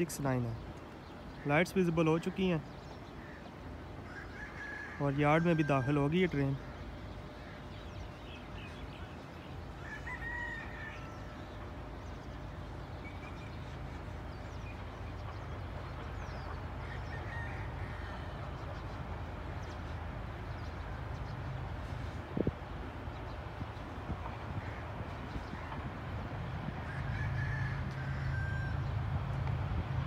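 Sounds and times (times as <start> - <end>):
rooster crowing: 4.1 - 6.0, 9.8 - 11.4, 16.8 - 18.5, 26.8 - 28.9.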